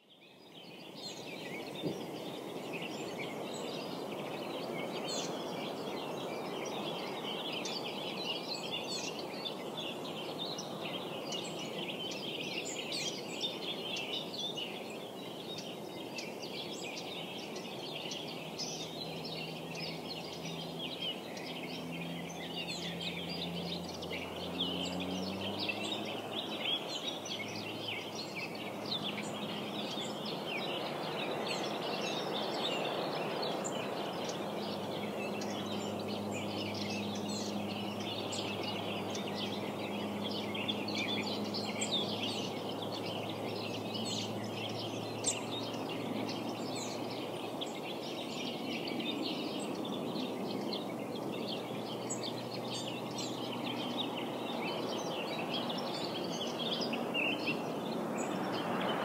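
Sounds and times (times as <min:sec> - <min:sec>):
small birds chirping: 0:00.0 - 0:59.0.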